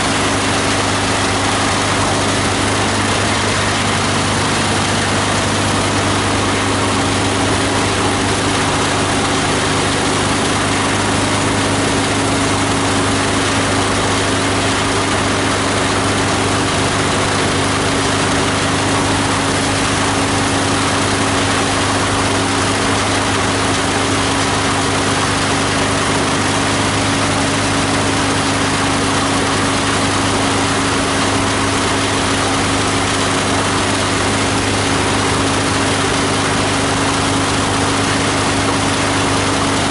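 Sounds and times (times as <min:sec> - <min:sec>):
diesel engine humming: 0:00.0 - 0:39.9.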